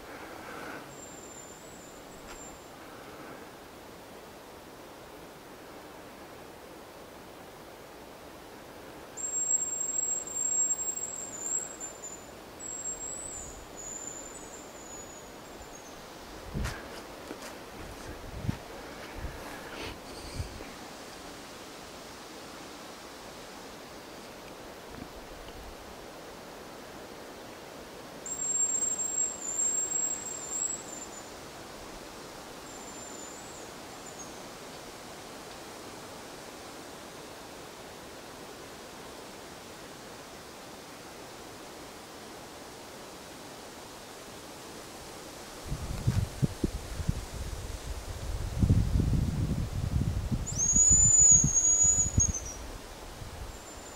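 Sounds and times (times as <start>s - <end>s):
forest hiss: 0.0s - 53.9s
high decoy whistle: 50.5s - 52.6s.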